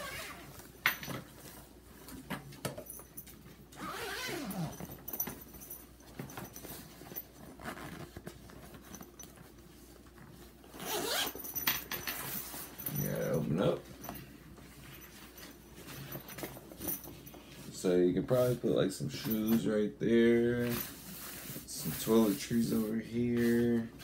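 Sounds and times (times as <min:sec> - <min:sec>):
zipper being pulled: 0:00.0 - 0:00.6, 0:03.8 - 0:04.9, 0:07.5 - 0:08.3, 0:10.7 - 0:11.5
bag rustling: 0:03.8 - 0:17.8.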